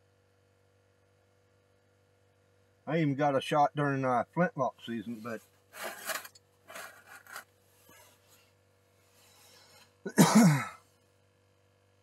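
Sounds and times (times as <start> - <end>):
handling rustle: 5.1 - 8.5
person coughing: 10.1 - 10.8.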